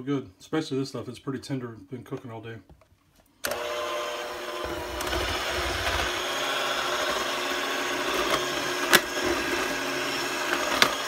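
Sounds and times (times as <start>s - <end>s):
electric hand mixer running: 3.4s - 11.0s.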